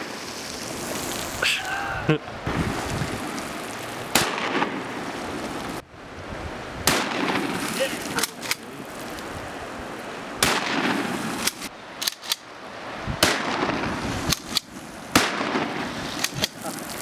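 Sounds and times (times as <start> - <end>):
quieter sharp cracks: 3.7 - 5.0, 6.8 - 8.7, 10.4 - 12.5, 13.2 - 17.0
loud gunshots: 4.1 - 4.7, 6.8 - 7.6, 10.4 - 11.1, 13.2 - 13.8, 15.1 - 15.8.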